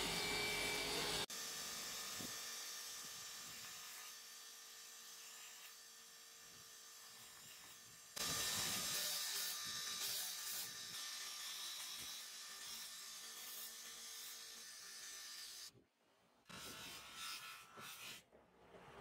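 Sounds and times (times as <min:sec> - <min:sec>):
sanding belt motor hum: 0:00.0 - 0:02.9.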